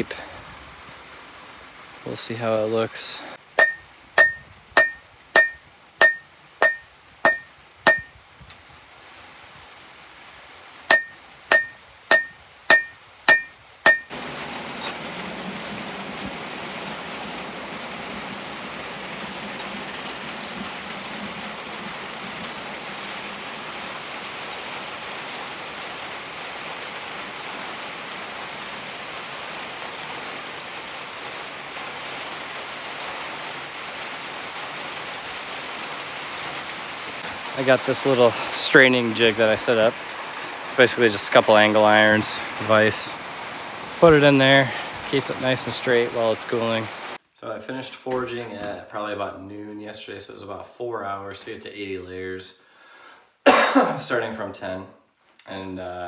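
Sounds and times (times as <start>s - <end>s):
hammer striking steel on anvil: 3.6s - 8.1s, 10.9s - 14.1s.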